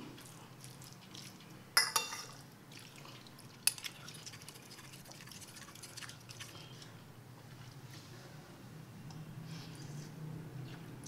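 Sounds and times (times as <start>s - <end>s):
cutlery clinking on plate: 1.8s - 2.4s.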